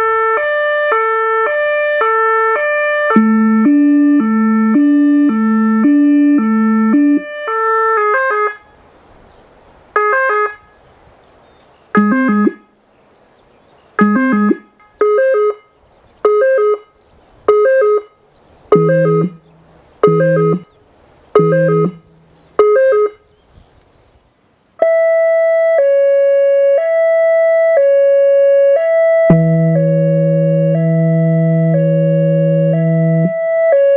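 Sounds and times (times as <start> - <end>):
deep low siren note: 0.0 - 8.6, 12.0 - 12.7, 14.0 - 15.7, 17.5 - 20.7, 21.4 - 23.2, 24.8 - 33.9
electronic siren two-tone: 1.2 - 8.6, 12.0 - 12.7, 14.0 - 20.8, 21.4 - 23.2, 24.8 - 33.9.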